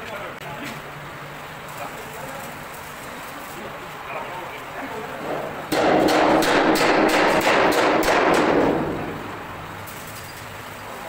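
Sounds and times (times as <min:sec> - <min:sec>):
steel sheet knocking against rollers: 0:05.2 - 0:09.5.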